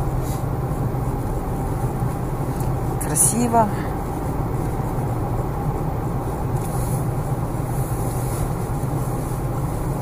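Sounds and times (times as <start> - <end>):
car engine and tyre road noise: 0.0 - 10.0.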